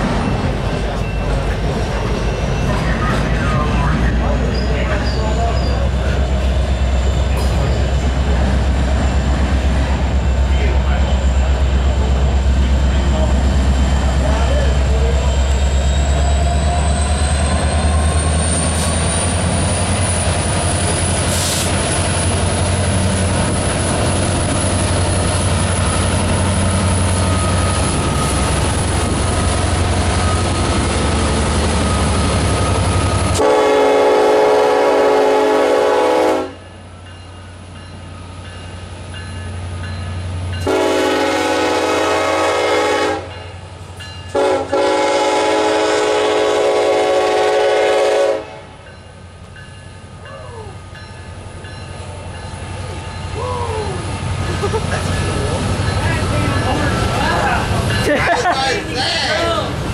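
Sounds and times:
locomotive engines rumbling: 0:00.0 - 0:59.9
locomotive air horn blasts: 0:33.4 - 0:36.6, 0:40.6 - 0:43.3, 0:44.3 - 0:48.7.

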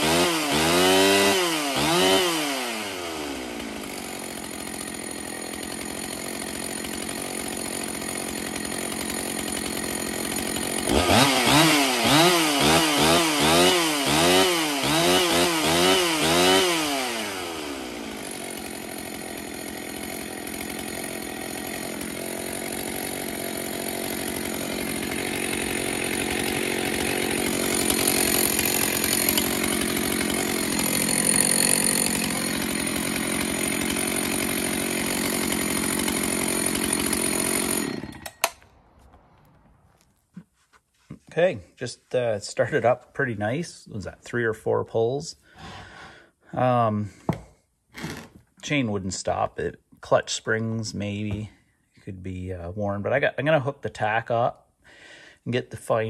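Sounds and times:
chainsaw engine idling: 0:00.0 - 0:38.7, 0:51.0 - 0:51.6
chainsaw throttle blips: 0:00.0 - 0:38.7.

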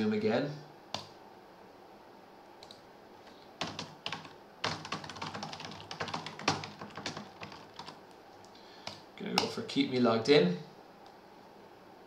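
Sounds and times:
typing on keyboard: 0:03.6 - 0:08.0.

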